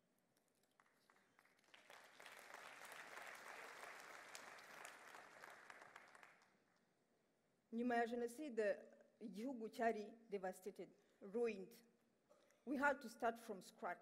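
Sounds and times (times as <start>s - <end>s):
audience applauding: 0.6s - 6.5s.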